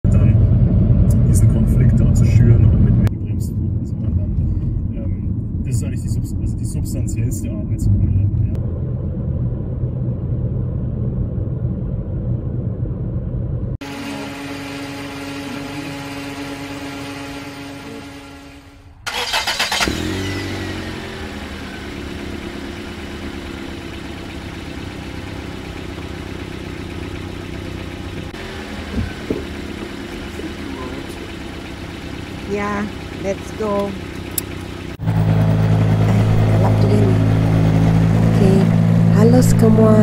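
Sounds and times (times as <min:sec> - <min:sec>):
car engine idling: 0:00.0 - 0:40.0
car engine starting: 0:00.0 - 0:40.0
car road rumble: 0:00.0 - 0:40.0
steady hum: 0:00.1 - 0:19.0.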